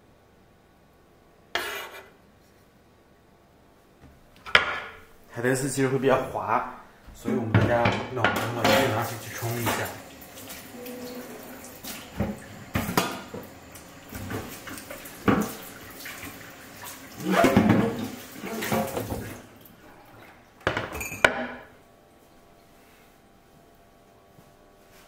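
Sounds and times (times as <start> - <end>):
dishes clattering: 4.5 - 5.1, 7.3 - 10.0, 12.1 - 13.5, 17.2 - 19.3, 20.6 - 21.7
water running: 5.7 - 21.2.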